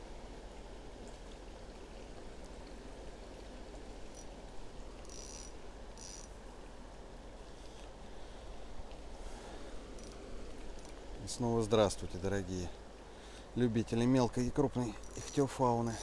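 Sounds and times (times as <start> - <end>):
river water flowing: 0.0 - 16.0.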